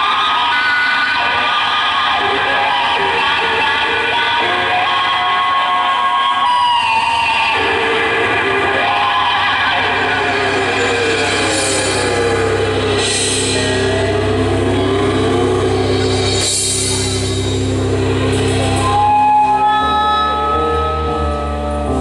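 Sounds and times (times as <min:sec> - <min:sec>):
bass guitar: 0:07.8 - 0:22.0
cymbal crashes: 0:09.8 - 0:19.1.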